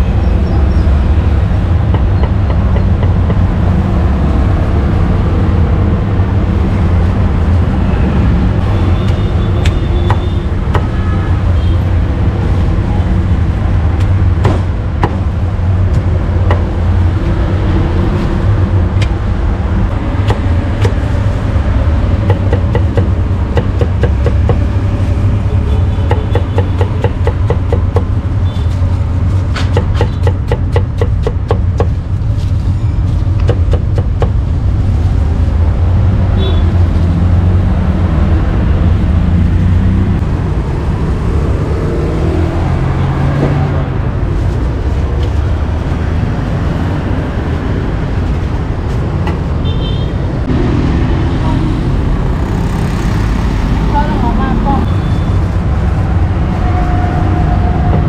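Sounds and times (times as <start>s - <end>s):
road traffic rumble: 0.0s - 58.0s
cleaver chopping on wooden block: 14.4s - 15.2s, 16.5s - 16.7s, 20.2s - 21.0s, 22.2s - 24.6s, 26.0s - 28.1s, 29.6s - 32.0s.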